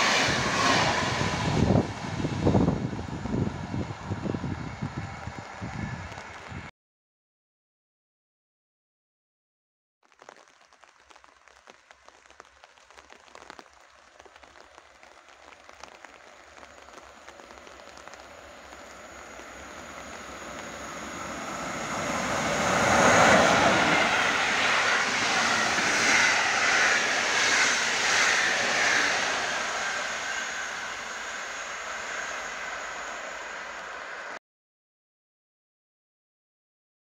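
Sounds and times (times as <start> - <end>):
train passing at speed: 0.0 - 6.7, 15.2 - 34.4.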